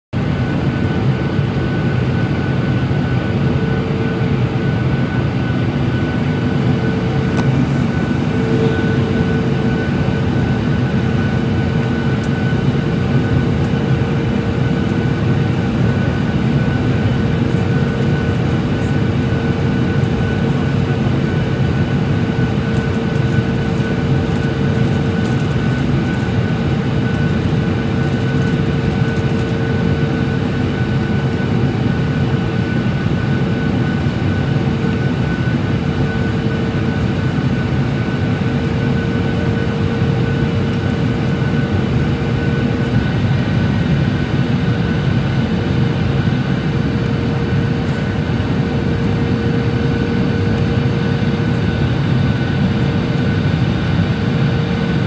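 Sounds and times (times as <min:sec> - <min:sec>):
airplane cabin airflow and engine drone: 0:00.2 - 0:55.0
steady engine whining tones: 0:00.2 - 0:55.0.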